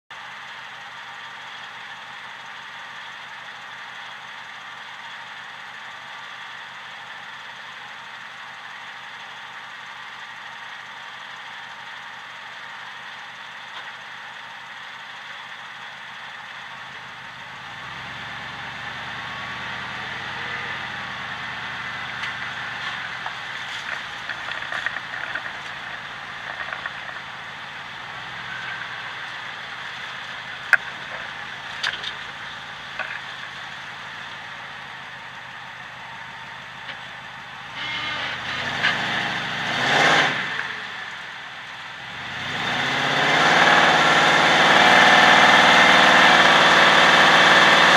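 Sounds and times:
road and tyre noise: 0.0 - 47.9
truck engine hum: 0.0 - 47.9
sharp clicks and knocks: 22.1 - 27.3, 28.5 - 33.6.

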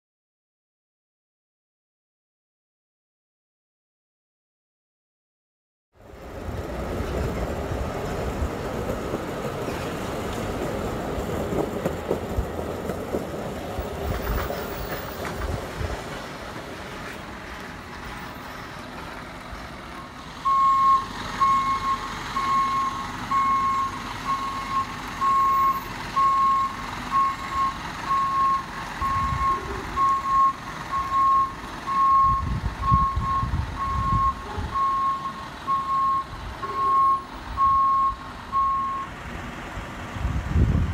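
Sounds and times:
reversing alarm beeping: 20.4 - 39.2.

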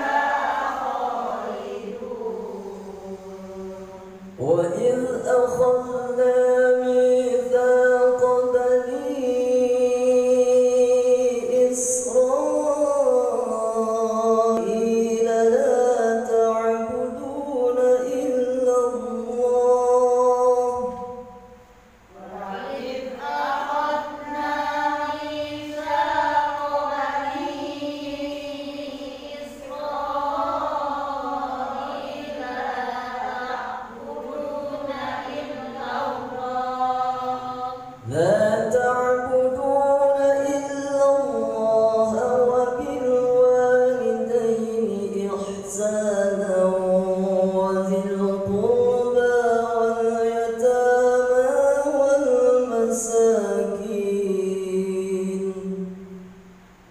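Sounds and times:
man reciting melodically: 0.7 - 23.2, 37.4 - 56.7.

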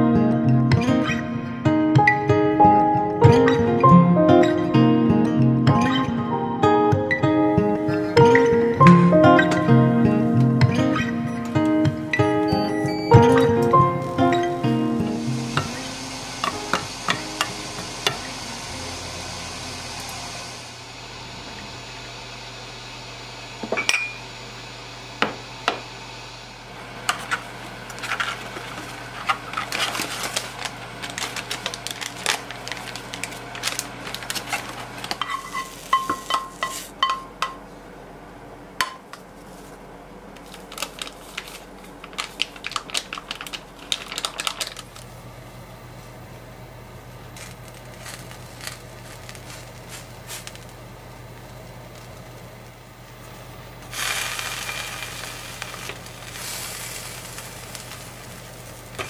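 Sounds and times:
mushrooms sizzling in a frying pan: 13.6 - 21.2, 26.8 - 37.0, 47.2 - 51.1, 53.8 - 59.0
dishes and utensils clinking: 35.1 - 37.6.

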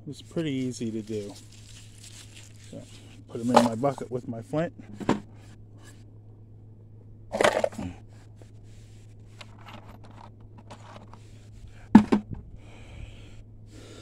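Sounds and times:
camera rustling against cloth: 0.6 - 4.0.

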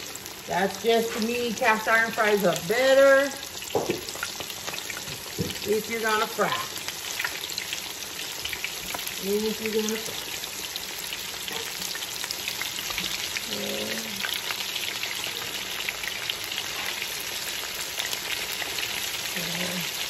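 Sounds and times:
fish deep-frying in oil: 0.0 - 20.0.

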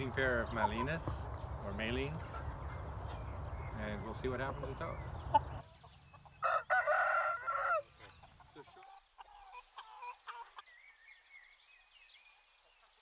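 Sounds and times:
rooster crowing: 6.4 - 7.9.

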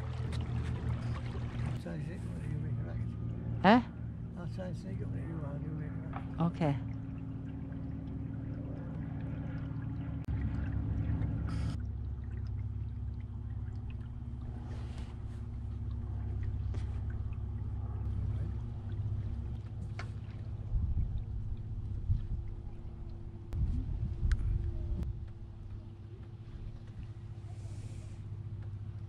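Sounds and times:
brief splashes: 0.0 - 1.8
low rumble: 0.0 - 29.0
water lapping against hull: 0.0 - 29.0.

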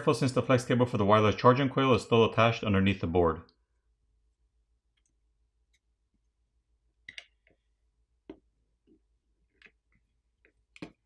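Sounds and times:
faint clicks and taps of small tools: 3.8 - 6.4, 7.0 - 11.0.

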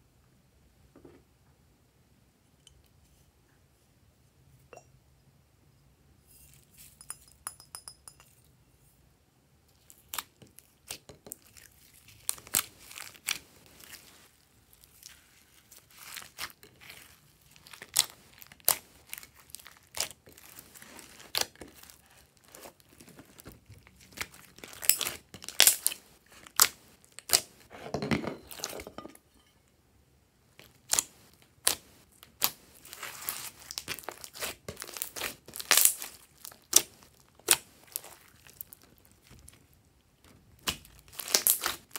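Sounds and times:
slime squishing and popping: 32.4 - 39.4, 40.6 - 41.9.

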